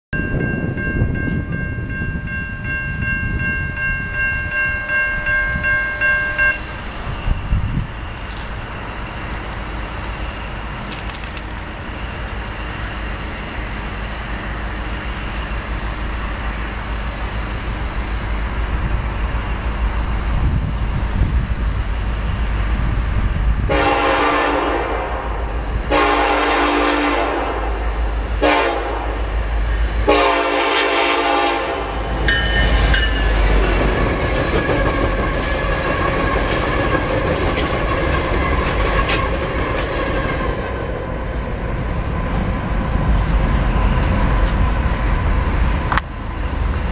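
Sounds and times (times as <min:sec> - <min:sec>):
diesel locomotive rumbling: 0:00.1 - 0:46.9
steady high tone: 0:00.2 - 0:23.7, 0:27.0 - 0:42.4
locomotive air horn: 0:23.7 - 0:27.8, 0:28.4 - 0:29.2, 0:30.0 - 0:32.1.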